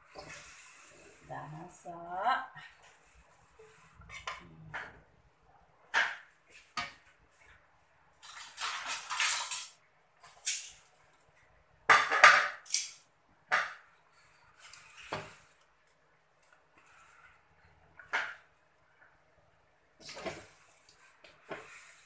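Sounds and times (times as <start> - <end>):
metal spatula scraping a wok: 3.1 - 4.4.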